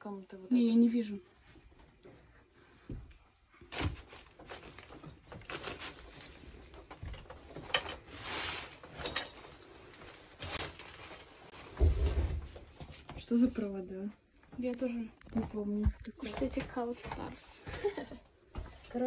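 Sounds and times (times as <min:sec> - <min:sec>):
clothes rustling: 0:03.3 - 0:13.4.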